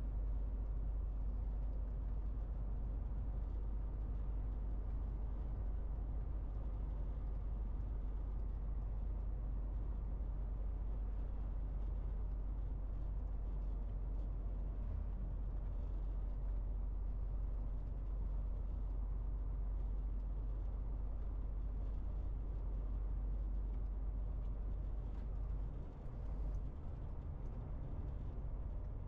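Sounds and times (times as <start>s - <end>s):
road rumble: 12.9s - 29.0s.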